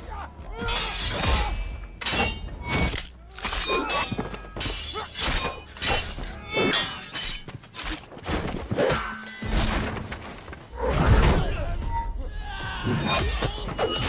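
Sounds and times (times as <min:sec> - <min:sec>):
swords clashing: 0:00.5 - 0:08.0.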